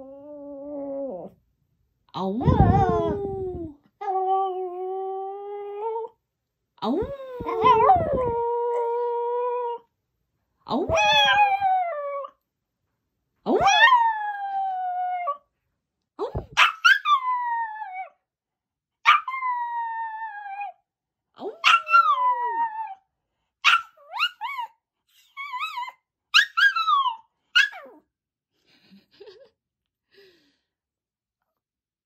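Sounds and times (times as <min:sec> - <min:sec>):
dog howling: 0:07.0 - 0:09.8, 0:10.9 - 0:12.3.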